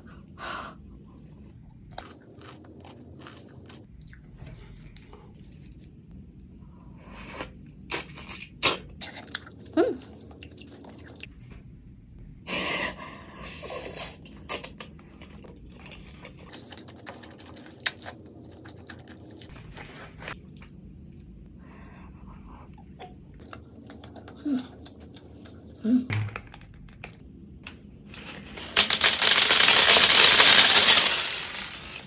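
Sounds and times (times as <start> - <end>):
crisp bites and wet chewing: 1.7 - 5.1.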